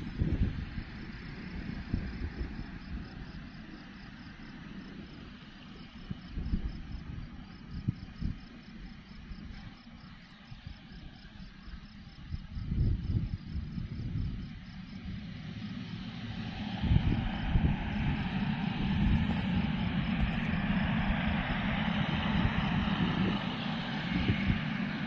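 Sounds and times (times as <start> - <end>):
insect chirping: 0.0 - 16.0
jet engine noise: 0.0 - 25.0
wind buffeting microphone: 0.0 - 25.0.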